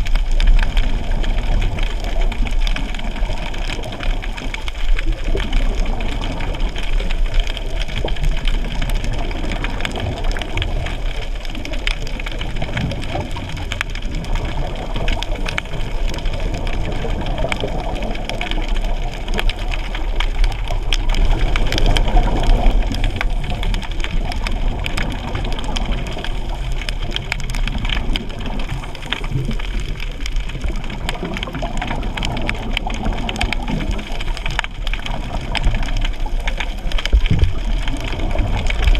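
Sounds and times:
crackling clicks: 0.0s - 38.9s
underwater low rumble: 0.0s - 38.9s.

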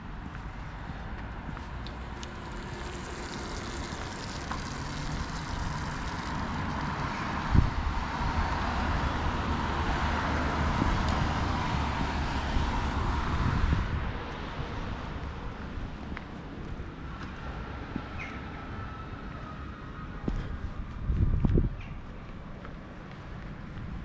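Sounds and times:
passing motor vehicle rushing: 2.0s - 14.2s.

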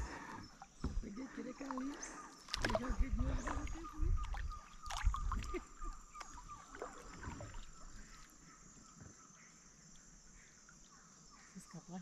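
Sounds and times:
water splashing and sloshing: 0.0s - 9.2s
paddle knocking against hull: 0.7s - 1.9s.

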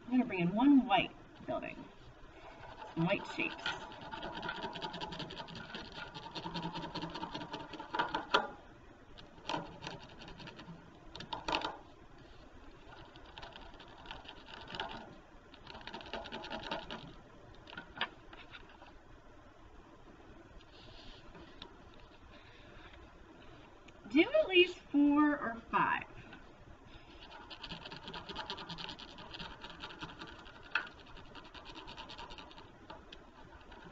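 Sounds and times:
pencil scratching on paper: 2.6s - 8.3s, 12.9s - 15.0s, 27.2s - 32.7s.

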